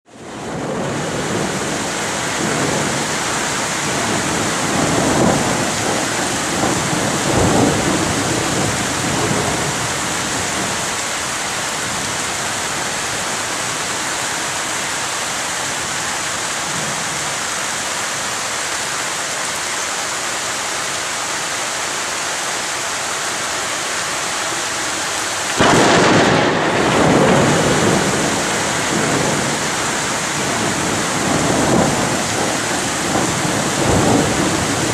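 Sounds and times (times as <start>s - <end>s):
heavy rain hissing: 0.2s - 34.9s
rolling thunder: 0.3s - 13.9s, 25.6s - 34.9s.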